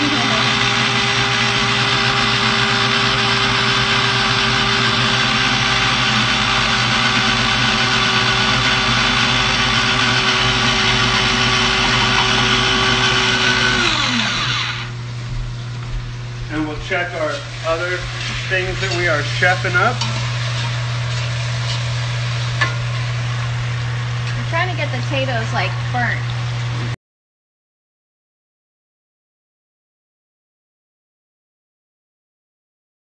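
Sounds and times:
blender motor running: 0:00.0 - 0:15.0.

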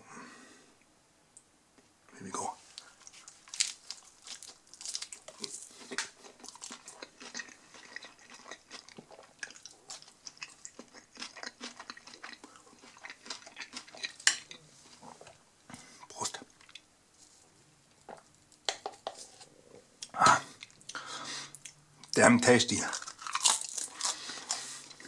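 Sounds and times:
person chewing crunchy pizza crust: 0:02.8 - 0:15.4, 0:22.8 - 0:25.0
mouth sounds: 0:20.0 - 0:22.9.

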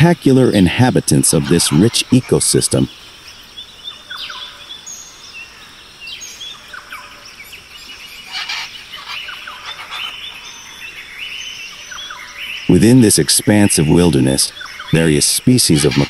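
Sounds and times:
birds chirping and whistling: 0:00.9 - 0:16.0
harsh bird call: 0:08.2 - 0:10.6, 0:11.8 - 0:16.0.

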